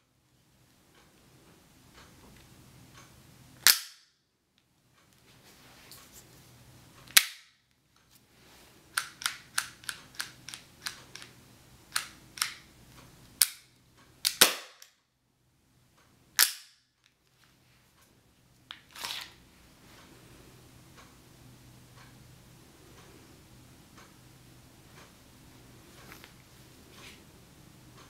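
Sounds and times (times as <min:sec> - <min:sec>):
airsoft pistol shots clacking: 0:14.3 - 0:14.9.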